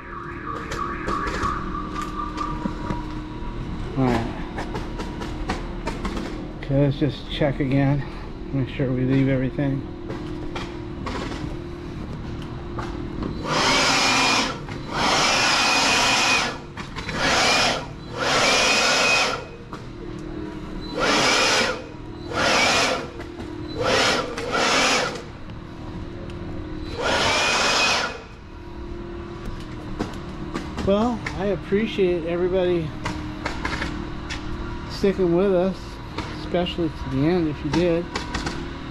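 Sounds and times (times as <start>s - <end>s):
power drill whining: 13.4s - 19.6s, 20.8s - 25.3s, 26.8s - 28.3s.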